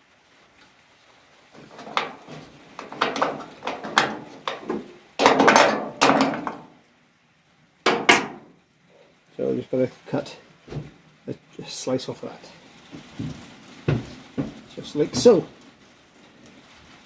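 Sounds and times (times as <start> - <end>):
sheet metal knocking and scraping: 1.6 - 6.8, 7.9 - 8.6.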